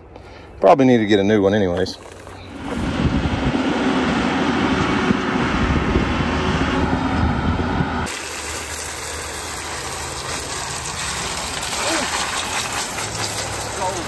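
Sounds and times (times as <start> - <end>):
tractor engine running: 1.6 - 14.0
garden hose spraying water: 8.0 - 14.0.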